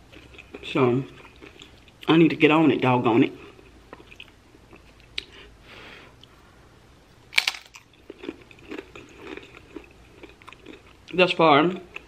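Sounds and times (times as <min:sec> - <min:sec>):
chip crunching bite: 0:07.3 - 0:10.9
muffled chewing crunches: 0:07.4 - 0:11.2.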